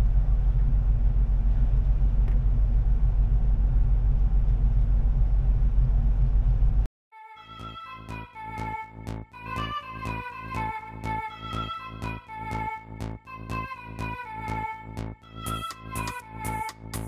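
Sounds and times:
music: 7.1s - 17.0s.

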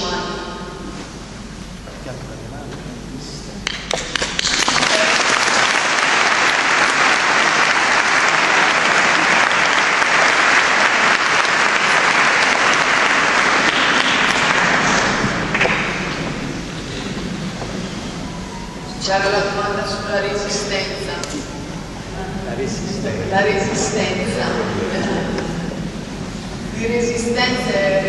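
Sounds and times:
audience applauding: 3.9s - 17.7s.

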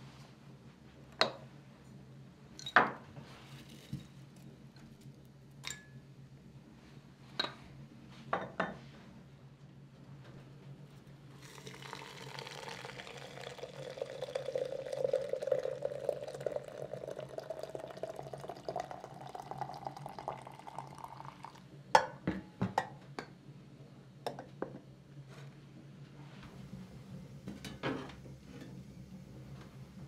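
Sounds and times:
water pouring into teapot: 11.4s - 21.7s.

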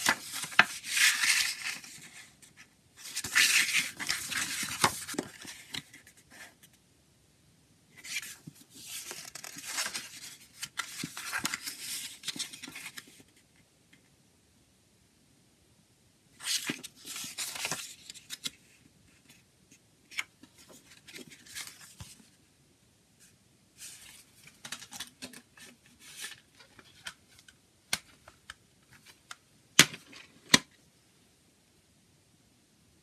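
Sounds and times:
paper pages rustling: 0.0s - 6.6s, 8.0s - 13.4s, 16.4s - 19.4s, 20.1s - 22.3s, 23.8s - 30.6s.

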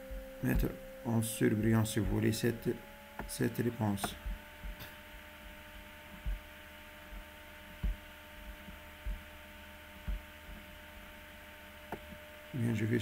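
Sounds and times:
low electrical hum: 0.0s - 13.0s
soft dull thumps: 0.1s - 0.8s, 1.6s - 2.6s, 3.2s - 9.4s, 10.0s - 10.7s.

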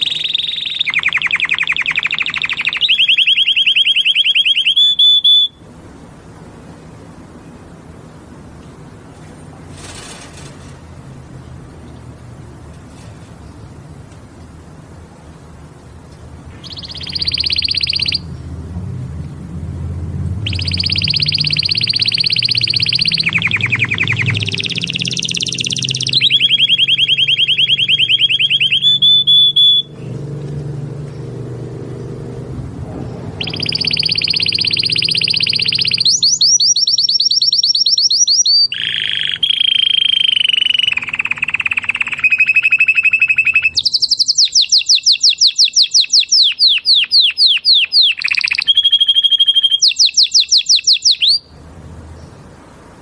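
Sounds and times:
canary singing fast trills: 0.0s - 5.7s, 16.5s - 18.7s, 19.9s - 52.5s.

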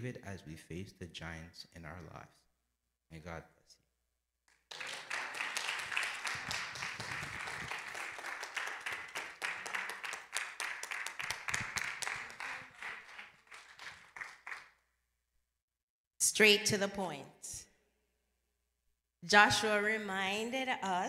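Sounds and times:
congregation applauding: 4.5s - 14.8s.

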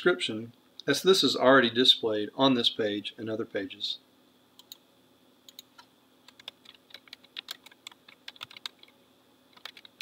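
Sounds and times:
typing on computer keyboard: 5.5s - 8.9s, 9.5s - 10.0s.

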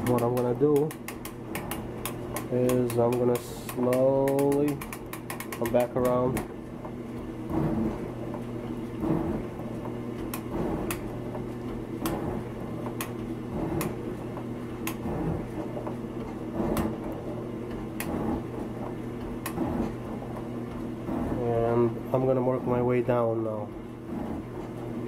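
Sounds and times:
sharp clicks: 0.0s - 6.5s
motor hum: 0.0s - 25.0s.

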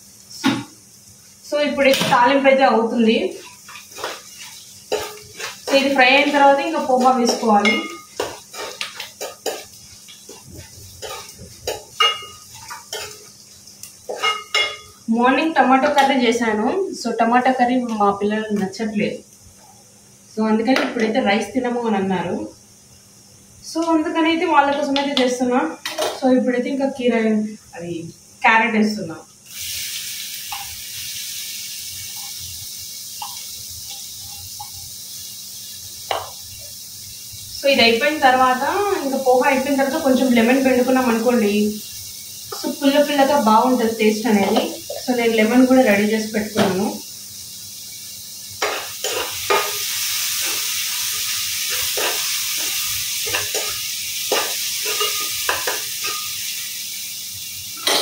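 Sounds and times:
vegetables sizzling in oil: 0.0s - 58.0s
scrape in pan: 3.3s - 13.3s, 14.1s - 14.9s, 48.6s - 56.4s.

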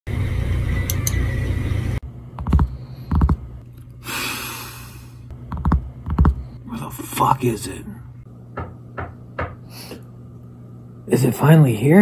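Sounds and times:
steady low hum: 0.1s - 12.0s
fingers drumming on a desk: 5.5s - 6.4s.

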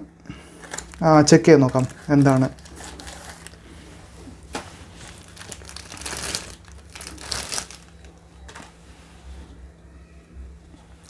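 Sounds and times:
plastic bag crinkling: 0.5s - 8.7s.

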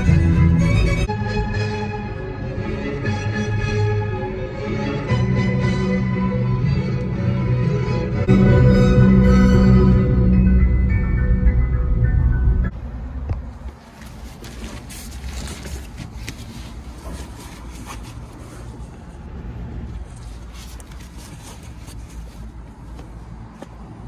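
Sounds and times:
nylon bag rustling: 13.8s - 18.8s.

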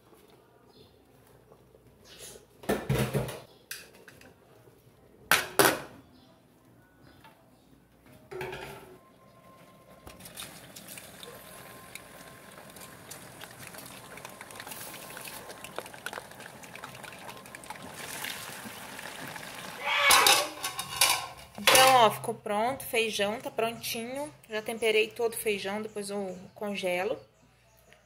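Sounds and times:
pots clattering: 8.3s - 9.0s, 10.1s - 22.2s
wooden spoon stirring: 10.1s - 19.4s
sausage sizzling and bubbling: 10.1s - 22.0s.

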